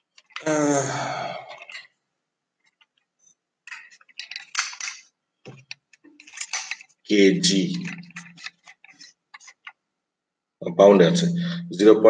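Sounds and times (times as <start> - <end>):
scraping handling noise: 0.0 - 0.4, 3.7 - 9.8.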